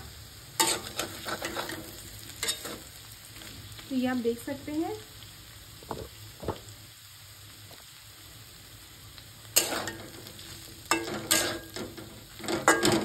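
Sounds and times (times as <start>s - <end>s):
oil sizzling: 0.0s - 13.0s
metal spatula scraping pan: 0.6s - 2.9s, 9.6s - 13.0s.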